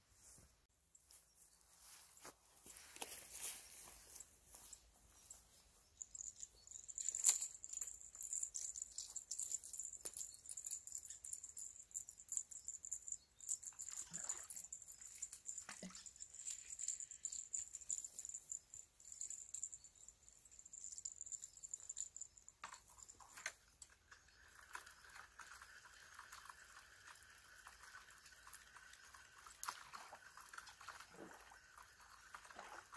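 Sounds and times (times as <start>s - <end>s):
high-pitched insect trill: 4.1s - 23.5s
fishing reel clicks and rustles: 6.1s - 32.9s.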